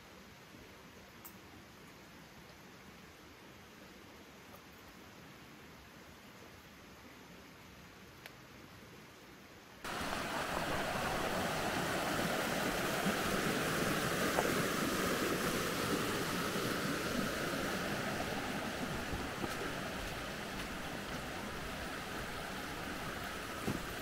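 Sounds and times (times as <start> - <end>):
creek rushing over stones: 9.8 - 24.0.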